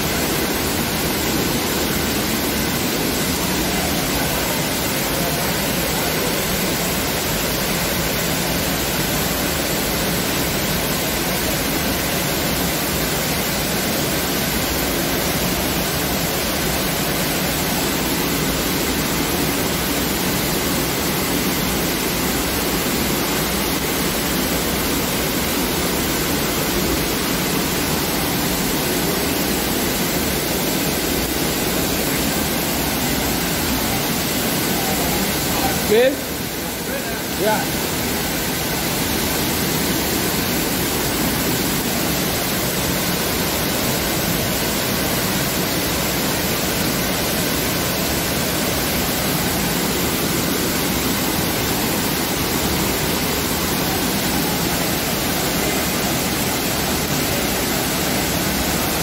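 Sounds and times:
waterfall pouring into pool: 0.0s - 59.0s.

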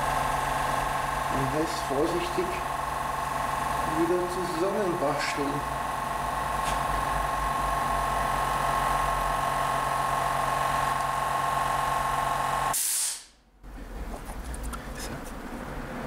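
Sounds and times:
air compressor humming: 0.0s - 14.0s
short air hiss: 12.7s - 13.4s.

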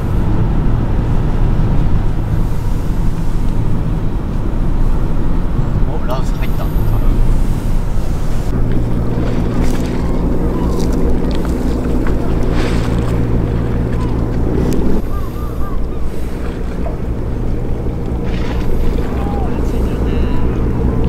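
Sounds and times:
low engine hum: 0.0s - 21.0s
wind buffeting microphone: 0.0s - 21.0s.

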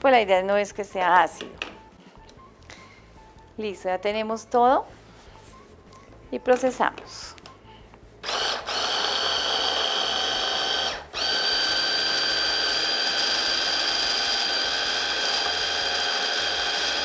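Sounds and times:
hand blender whining: 8.2s - 17.0s.

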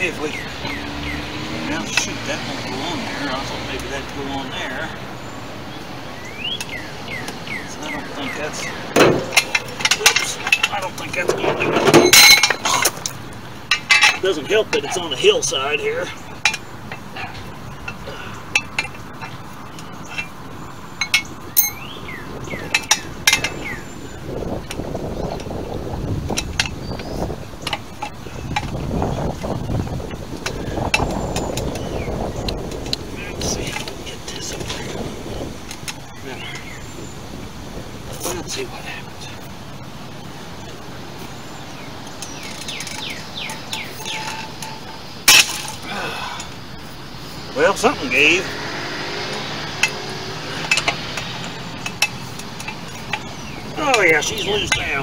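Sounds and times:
birds chirping: 0.0s - 55.0s
steel hand tools clinking: 11.9s - 13.1s, 21.0s - 21.9s, 42.2s - 45.8s, 49.0s - 55.0s.

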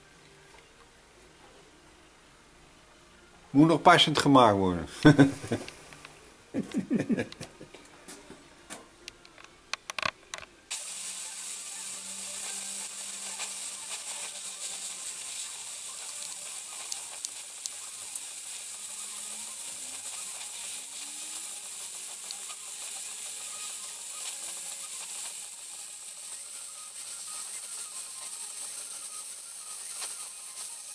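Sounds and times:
welding torch flame hissing: 4.9s - 7.6s, 10.7s - 30.9s.

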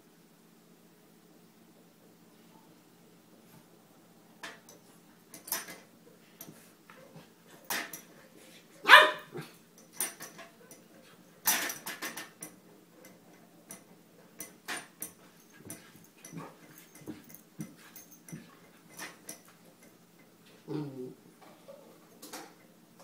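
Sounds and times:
puppy barking: 8.8s - 9.4s.

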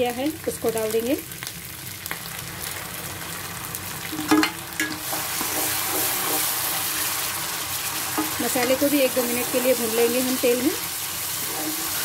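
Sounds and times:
onions sizzling in hot oil: 0.0s - 12.0s
spatula stirring in pan: 4.9s - 12.0s.

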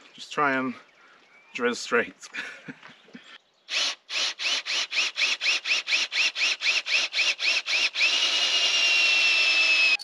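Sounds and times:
cordless drill boring into wood: 3.7s - 10.0s.

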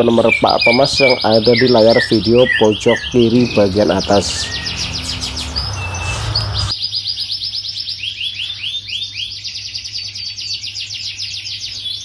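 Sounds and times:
canary singing trills: 0.0s - 12.0s.

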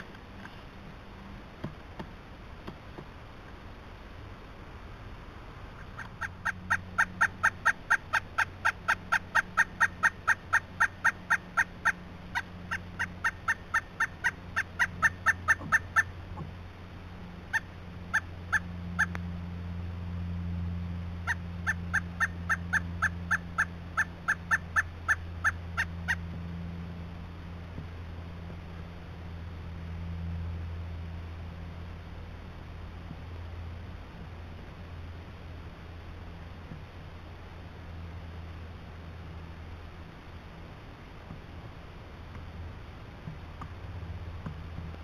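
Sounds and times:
woodpecker calling: 5.7s - 16.6s, 17.4s - 19.2s, 21.2s - 26.4s.

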